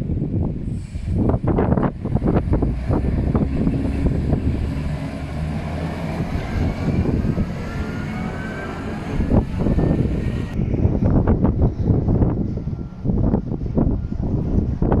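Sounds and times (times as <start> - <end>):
freight train rumbling past: 0.0 - 15.0
faint rising tones: 2.9 - 10.6.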